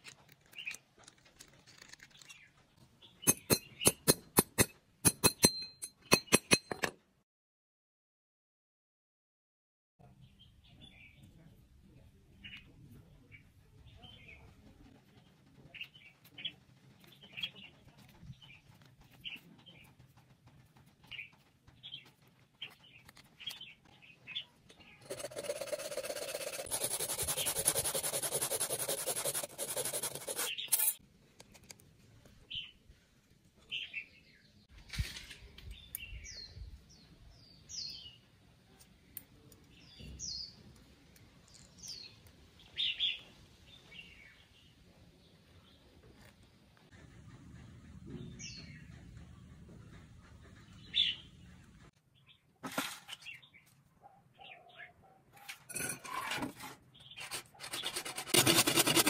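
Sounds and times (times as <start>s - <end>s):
small birds chirping: 0.4s - 4.2s, 12.2s - 28.0s, 35.6s - 52.5s, 53.2s - 55.2s.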